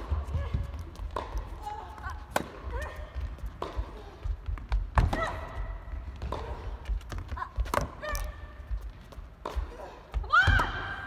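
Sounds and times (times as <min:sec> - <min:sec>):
tennis racket hitting ball: 0:00.0 - 0:08.6.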